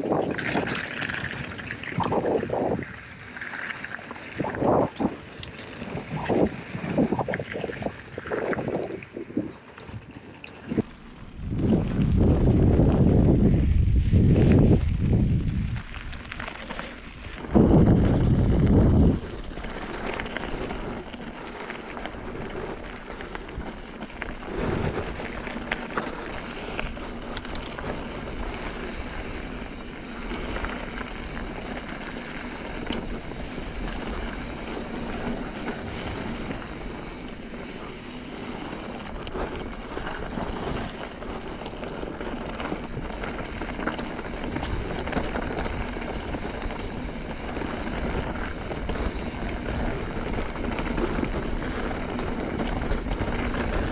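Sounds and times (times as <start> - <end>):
wind on microphone: 0.0 - 10.1, 10.7 - 21.4, 22.0 - 53.9
tyres rushing on dirt: 15.7 - 53.9.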